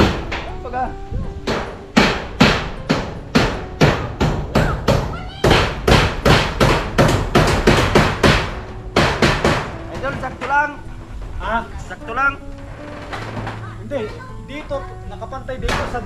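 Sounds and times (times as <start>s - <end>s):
hammer driving nails: 0.0s - 0.5s, 1.4s - 10.6s.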